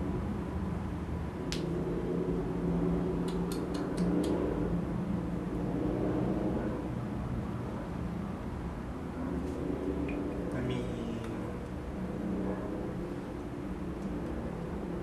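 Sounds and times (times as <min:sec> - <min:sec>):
low steady rumble: 0:00.0 - 0:15.0
sharp clicks: 0:03.3 - 0:04.4.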